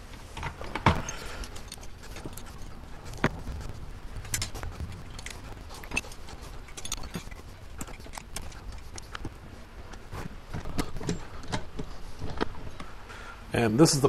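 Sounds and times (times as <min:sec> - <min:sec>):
metal parts clinking on gears: 0:04.3 - 0:09.2.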